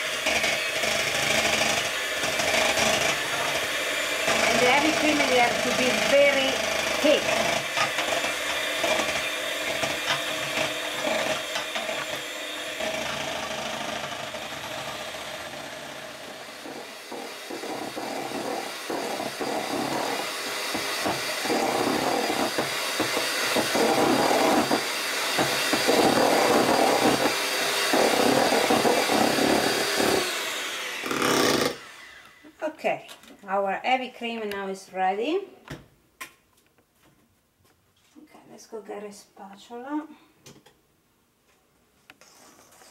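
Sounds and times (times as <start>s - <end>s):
electric hand mixer whipping cream: 0.0s - 32.4s.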